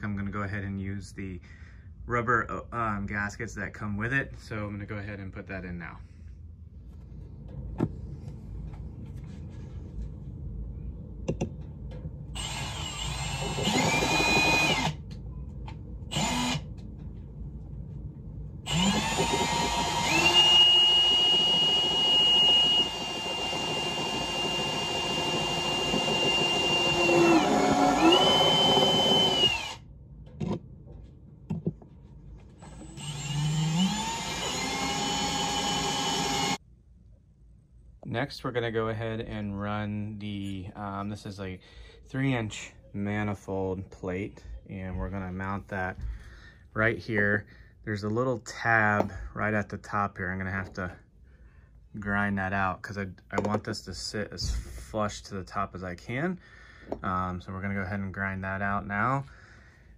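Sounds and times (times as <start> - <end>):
cordless drill whining: 12.4 - 15.0, 16.1 - 16.7, 18.7 - 29.8, 32.6 - 36.6.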